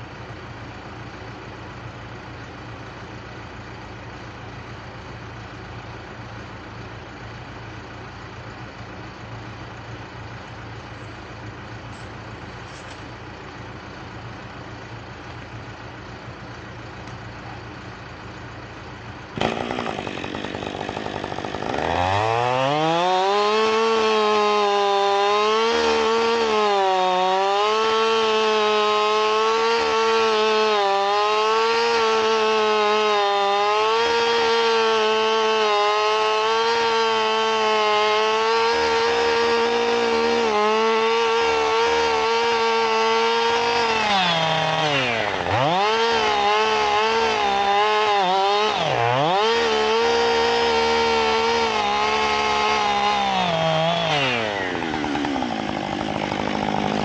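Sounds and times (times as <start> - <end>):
low engine hum: 0.0 - 19.5
chainsaw cutting wood: 19.3 - 57.0.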